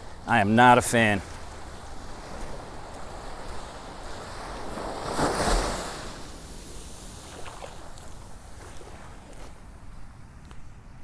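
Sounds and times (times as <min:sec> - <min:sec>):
small waves breaking on beach: 0:00.0 - 0:10.4.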